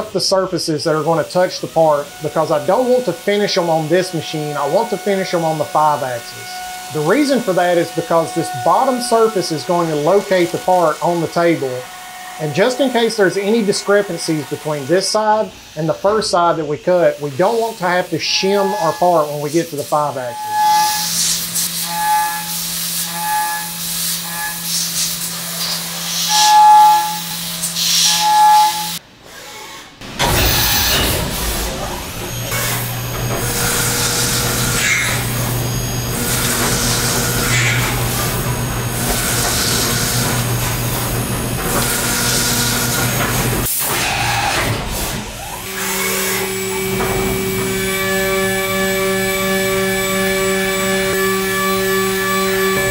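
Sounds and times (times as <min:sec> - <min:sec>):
milling machine spindle hum: 0:00.0 - 0:29.0, 0:29.9 - 0:52.9
ringing metal cutting tone: 0:01.0 - 0:16.4, 0:17.0 - 0:29.0, 0:30.0 - 0:43.4, 0:45.4 - 0:52.9.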